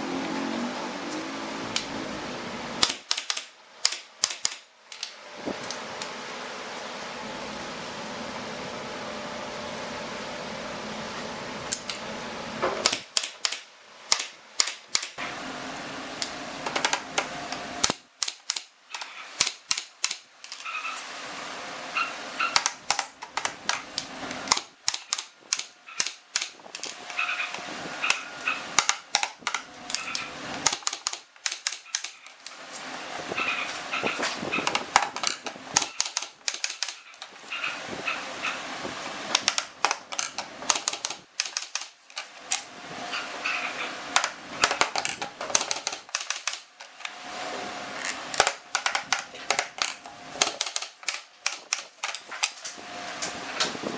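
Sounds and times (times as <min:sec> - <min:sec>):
nail gun firing into wood: 0:02.8 - 0:04.7, 0:12.7 - 0:15.2, 0:24.5 - 0:26.9, 0:30.6 - 0:32.2, 0:34.6 - 0:37.1, 0:39.3 - 0:42.6, 0:44.2 - 0:46.7, 0:48.4 - 0:52.6.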